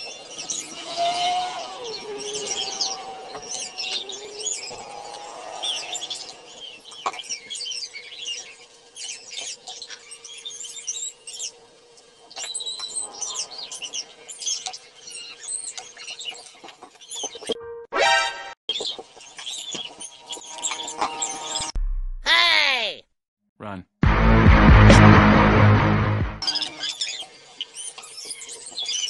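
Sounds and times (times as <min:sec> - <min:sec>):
small birds chirping: 0:00.0 - 0:17.6, 0:18.7 - 0:21.7, 0:26.4 - 0:29.0.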